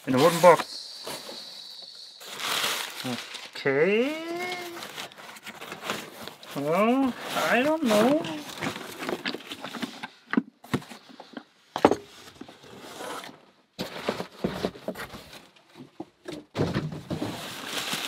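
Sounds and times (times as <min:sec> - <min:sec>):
crumpled newspaper rustling: 0:02.2 - 0:09.9, 0:17.1 - 0:18.0.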